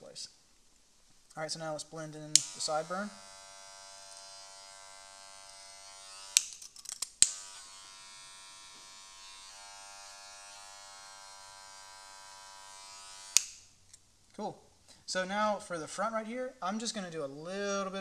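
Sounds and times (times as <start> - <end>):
electric hair clippers buzzing: 2.4 - 6.5, 7.2 - 13.6.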